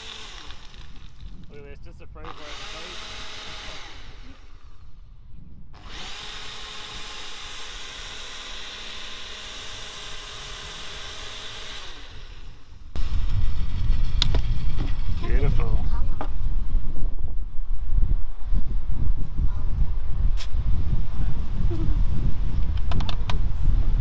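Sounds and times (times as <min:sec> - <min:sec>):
blender motor blending ice: 0:00.0 - 0:01.5, 0:02.3 - 0:04.8, 0:05.8 - 0:13.3.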